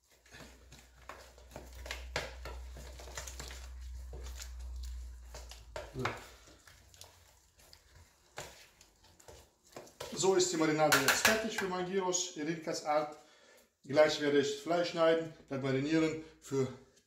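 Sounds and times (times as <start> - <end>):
wet squelches and splashes: 0.0 - 11.4.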